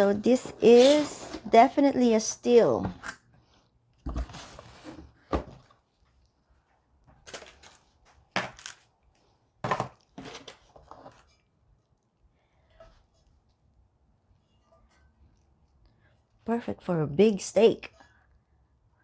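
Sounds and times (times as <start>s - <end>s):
cardboard and paper rustling: 0.0s - 1.7s, 4.0s - 6.2s, 7.1s - 8.9s, 9.6s - 11.4s.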